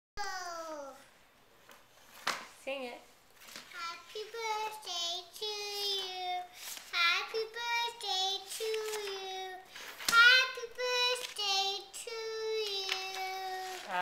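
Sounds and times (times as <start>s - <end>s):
girl singing in high voice: 3.7s - 14.0s.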